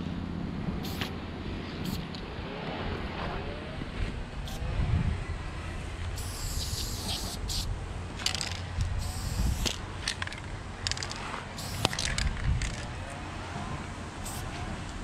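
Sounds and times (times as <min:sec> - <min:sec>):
steady low rumble: 0:00.0 - 0:15.0
spray paint can hissing: 0:00.8 - 0:01.1, 0:01.8 - 0:02.0, 0:06.2 - 0:07.7, 0:08.3 - 0:09.8, 0:10.8 - 0:12.8, 0:14.2 - 0:14.5.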